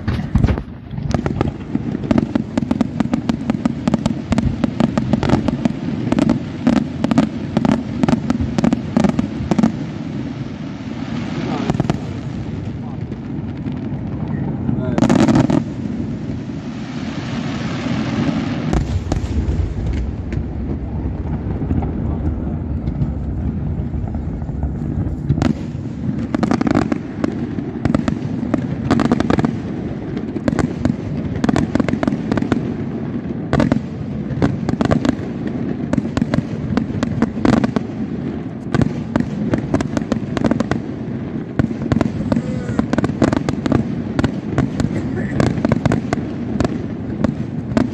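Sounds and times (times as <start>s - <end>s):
firework shell bursts and bangs: 0.0s - 9.8s
fireworks crackling: 0.0s - 47.9s
steady low rumble: 18.8s - 26.3s.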